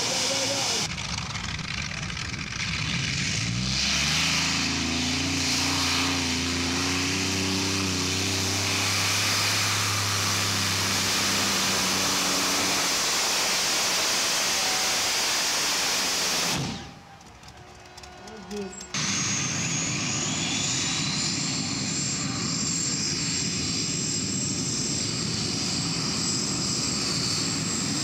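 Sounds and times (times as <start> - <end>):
tractor engines roaring at full power: 0.0 - 28.0.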